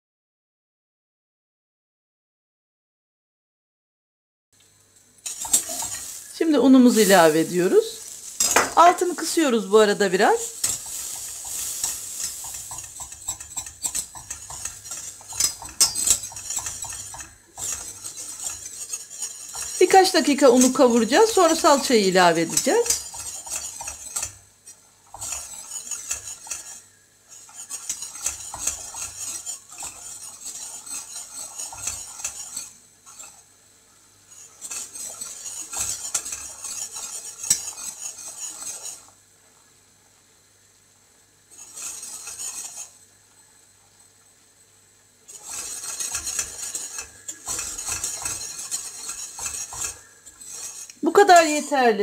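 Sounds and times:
whisk scraping a metal saucepan: 5.2s - 33.6s, 34.2s - 39.2s, 41.5s - 43.0s, 45.2s - 52.0s.

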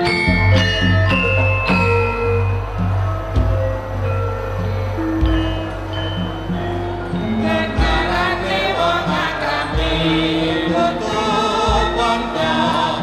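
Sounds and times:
gamelan music: 0.0s - 13.0s
chorus of voices singing: 5.2s - 13.0s.

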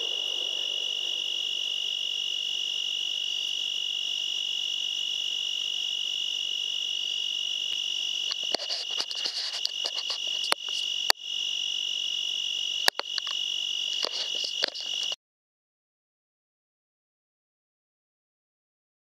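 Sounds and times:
night insects chorus: 0.0s - 15.2s
clicking and rustling: 8.3s - 10.9s, 14.0s - 15.2s.

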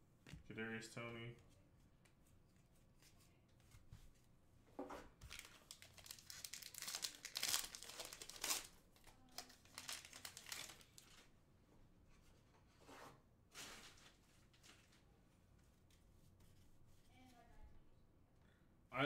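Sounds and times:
card pack wrapper tearing: 5.2s - 11.1s
cards rustling: 5.2s - 11.3s.

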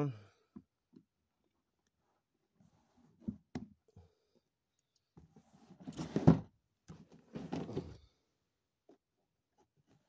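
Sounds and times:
cardboard rustling and scraping: 5.3s - 8.0s.

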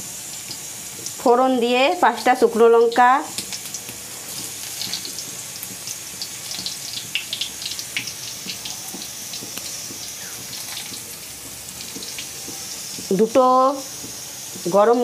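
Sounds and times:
chillies sizzling in hot oil: 0.0s - 15.0s.

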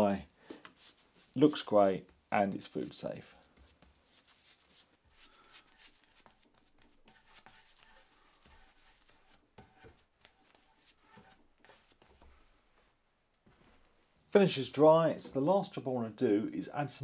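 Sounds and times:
paintbrush swishing on wood: 2.7s - 12.9s.

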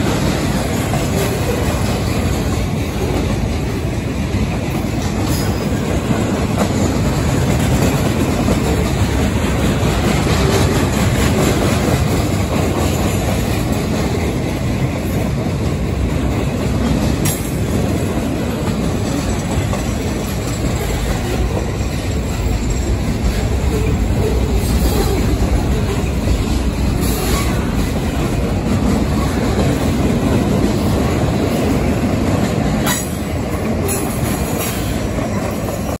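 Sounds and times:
train wheels rumbling on rail: 0.0s - 36.0s
wheels clickety-clack: 0.0s - 36.0s.

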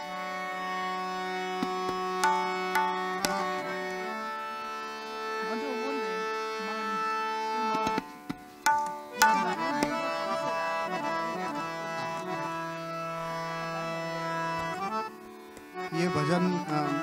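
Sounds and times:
harmonium playing chords: 0.0s - 17.0s
tabla strokes: 1.6s - 3.7s, 7.8s - 10.1s.

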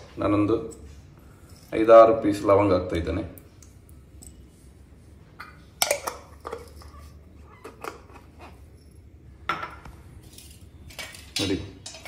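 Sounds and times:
metal pot and plate clinking: 5.4s - 7.0s, 9.5s - 12.0s.

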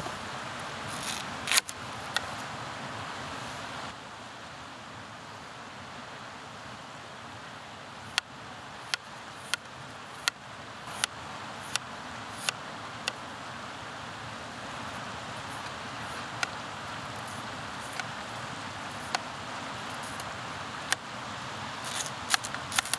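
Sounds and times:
river rushing: 0.0s - 22.9s.

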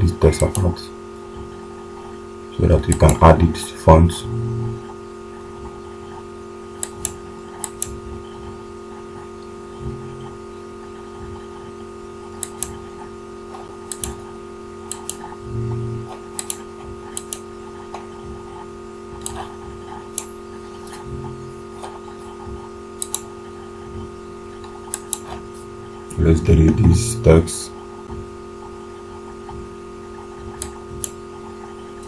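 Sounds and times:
low electrical hum: 0.0s - 32.0s
computer mouse clicks: 0.4s - 0.7s, 2.8s - 3.2s, 6.8s - 8.4s, 12.3s - 12.9s, 13.5s - 15.4s, 16.1s - 18.1s, 19.2s - 21.0s, 21.8s - 23.3s, 24.6s - 25.4s, 30.2s - 32.0s.

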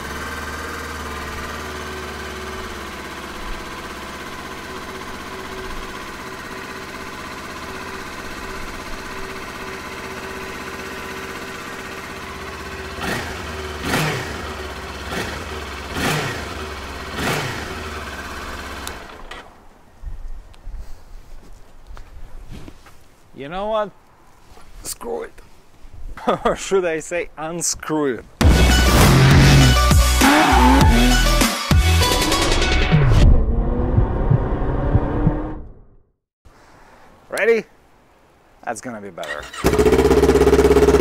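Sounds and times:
motorcycle engine idling and revving: 0.0s - 20.0s, 28.4s - 36.1s, 39.2s - 41.0s.

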